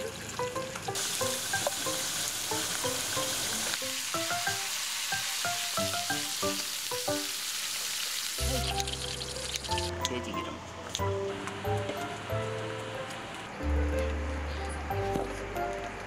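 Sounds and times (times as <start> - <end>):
light plucked background music: 0.0 - 7.4, 8.4 - 16.0
meat sizzling in hot oil: 0.0 - 9.9.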